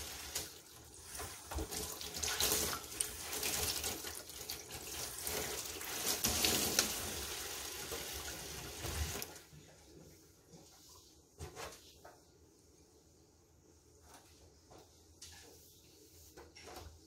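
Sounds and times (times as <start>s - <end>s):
tap water running into sink: 0.0s - 9.4s.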